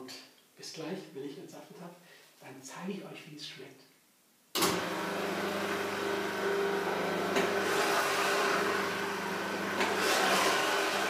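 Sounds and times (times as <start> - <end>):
juicer motor humming: 4.6 - 11.0.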